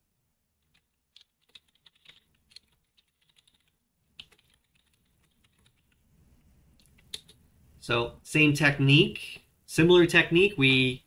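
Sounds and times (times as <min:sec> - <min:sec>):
faint keyboard typing: 0:00.6 - 0:07.4.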